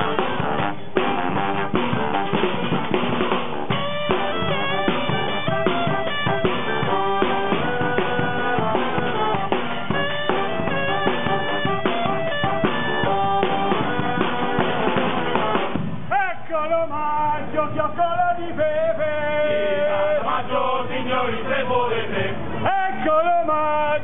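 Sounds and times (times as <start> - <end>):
bass drum beating: 0.0 - 16.1
street band playing fast tune: 0.0 - 16.5.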